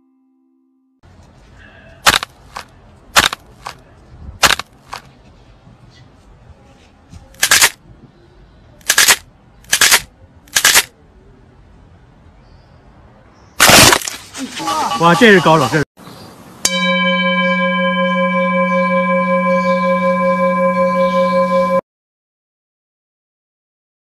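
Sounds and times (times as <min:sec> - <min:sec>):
sharp loud cracks: 0:02.0 - 0:03.8, 0:04.4 - 0:05.1, 0:07.4 - 0:07.8, 0:08.8 - 0:10.9, 0:13.6 - 0:14.4.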